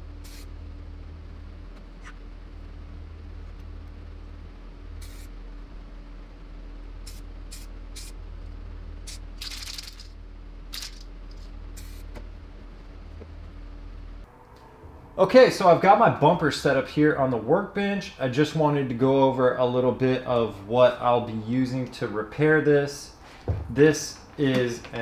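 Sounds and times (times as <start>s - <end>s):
aerosol can spraying: 0.2s - 0.5s, 5.0s - 5.3s.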